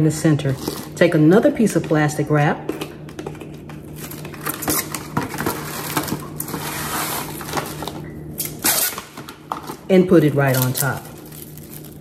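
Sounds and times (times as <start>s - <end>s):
cling wrap crackling: 3.9s - 12.0s
cling wrap tearing: 4.0s - 9.8s, 10.5s - 12.0s.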